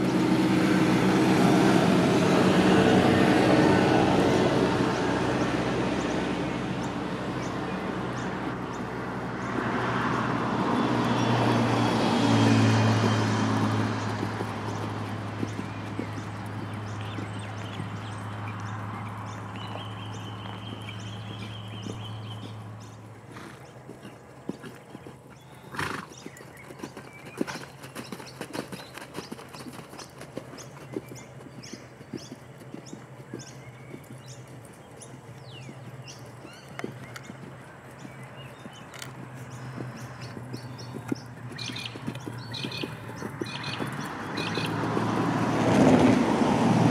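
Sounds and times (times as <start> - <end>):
horse hoofbeats on sand: 0.0 - 46.9
vehicle engine drone: 0.0 - 46.9.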